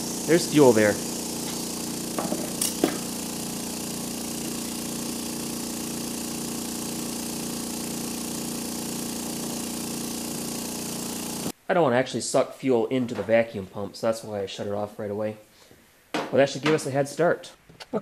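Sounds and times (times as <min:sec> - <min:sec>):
small vacuum pump running: 0:00.0 - 0:11.5.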